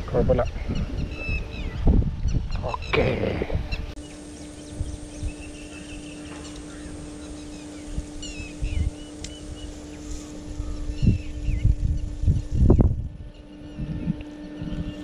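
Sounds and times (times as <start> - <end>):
birds chirping: 0.0 - 15.0
steady low hum: 0.0 - 15.0.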